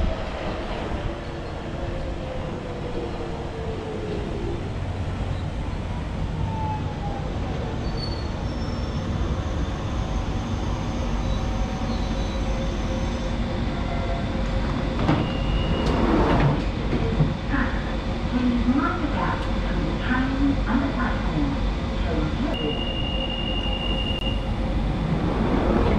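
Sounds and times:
train slowing to a stop: 0:00.0 - 0:25.9
train doors opening: 0:13.8 - 0:17.8.

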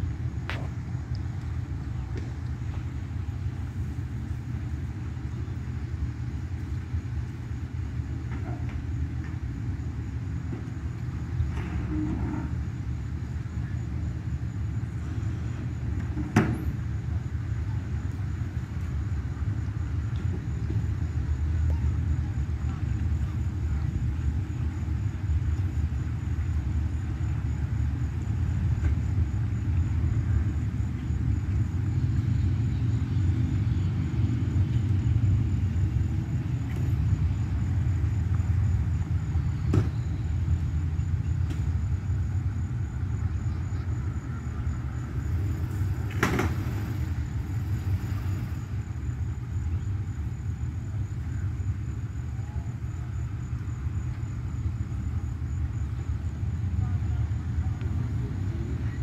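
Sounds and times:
boat and truck engines rumbling: 0:00.0 - 0:59.0.

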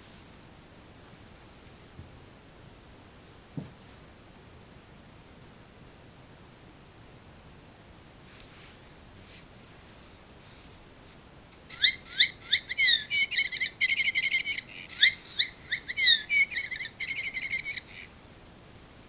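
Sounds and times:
bird singing whistles and trills: 0:11.7 - 0:18.1.

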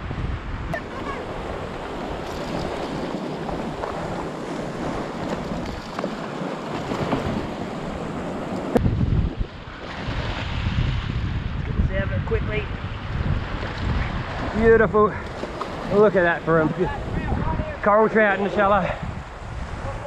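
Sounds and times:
wind buffeting microphone: 0:00.0 - 0:20.0
surf breaking on rocks: 0:00.7 - 0:11.7.

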